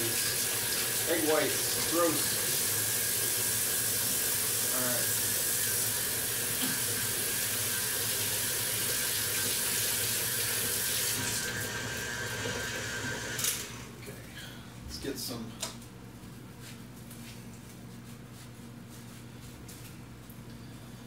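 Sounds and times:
faucet water running into sink: 0.0 - 13.4.

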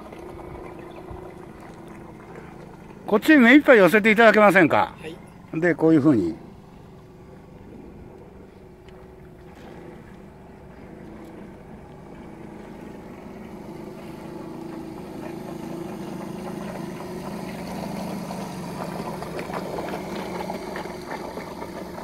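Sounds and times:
model steam engine humming: 11.7 - 22.0.

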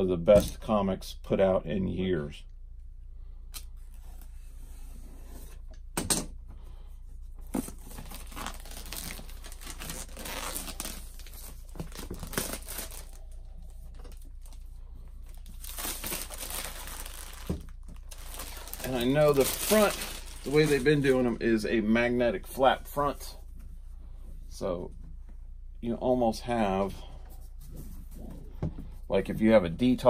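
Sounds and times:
plastic wrapping crinkling and tearing: 7.6 - 14.7, 15.3 - 21.4.

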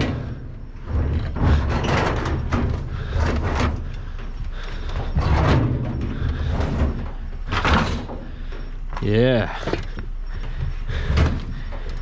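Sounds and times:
metal knocks and clatters: 0.0 - 8.6.

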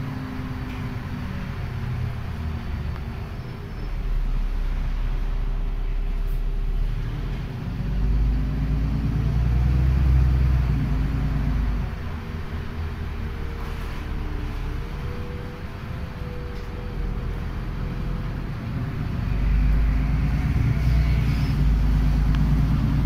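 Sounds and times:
bus interior rumble: 0.0 - 23.0.

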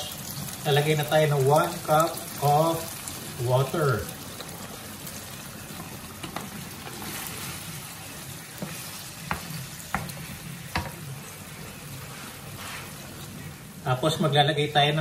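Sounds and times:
meat sizzling in a frying pan: 0.0 - 15.0
wooden spatula knocking on pan: 8.6 - 11.0.

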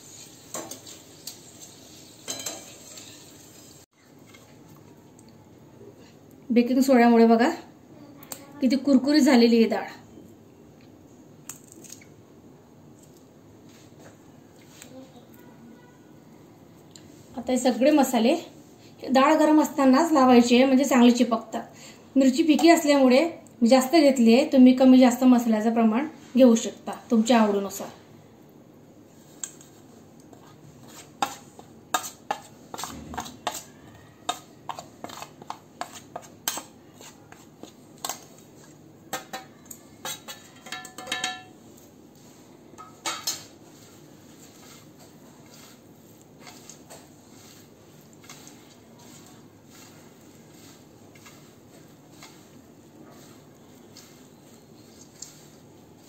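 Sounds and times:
spoon clinking on steel plate: 2.2 - 3.2, 39.1 - 41.6
faint rustling of dal: 28.9 - 39.1, 41.6 - 56.0.

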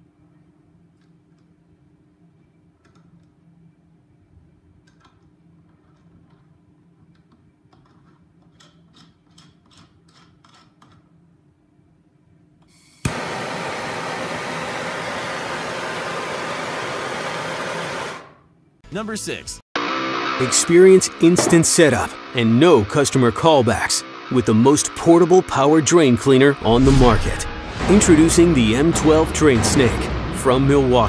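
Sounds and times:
loud hiss of burning gas: 12.8 - 18.2.

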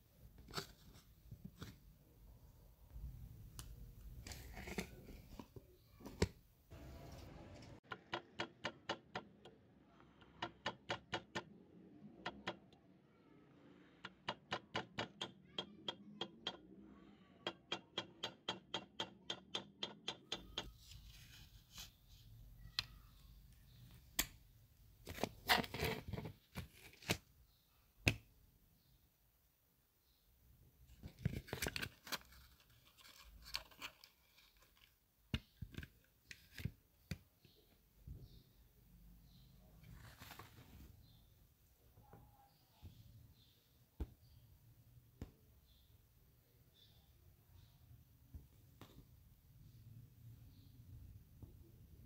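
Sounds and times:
hammer tapping metal rod: 14.0 - 16.7, 17.5 - 20.8
handling of model car chassis: 31.0 - 36.8.

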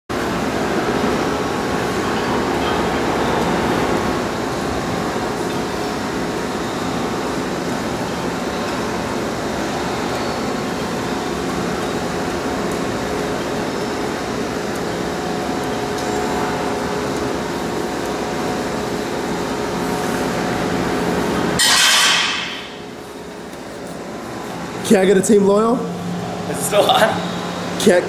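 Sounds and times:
mechanical drone with hum tones: 0.1 - 28.0.

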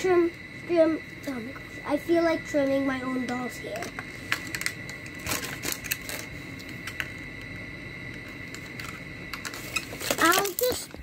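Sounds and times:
plastic packaging crinkling: 4.3 - 7.1, 8.4 - 10.9.

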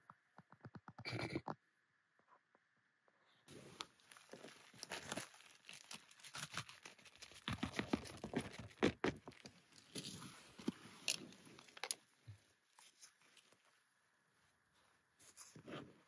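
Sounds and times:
plastic bag crinkling: 3.5 - 10.2.

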